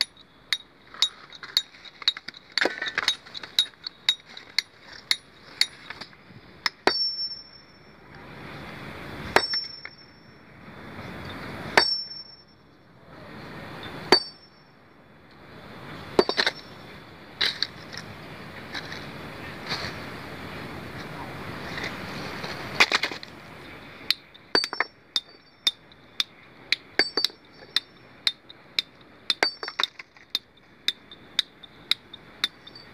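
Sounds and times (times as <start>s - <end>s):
hammer clinking on stone: 0.0s - 7.9s, 9.4s - 10.2s, 11.8s - 12.5s, 14.1s - 14.6s, 16.2s - 16.7s, 24.1s - 26.4s, 27.0s - 32.9s.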